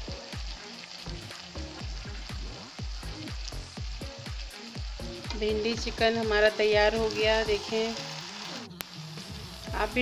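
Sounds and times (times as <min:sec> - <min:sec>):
background music with pulsing beat: 0:00.0 - 0:07.5
curry sizzling in a pan: 0:00.0 - 0:10.0.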